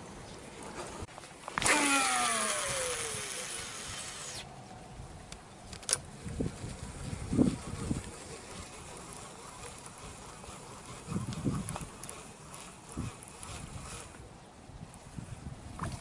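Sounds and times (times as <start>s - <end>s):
fishing reel spool whirring: 1.4s - 4.7s, 5.8s - 14.5s.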